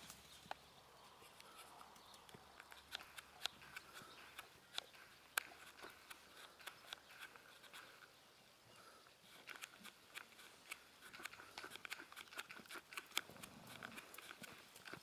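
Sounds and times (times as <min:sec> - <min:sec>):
hoofbeats trotting on sand: 0:09.4 - 0:15.0.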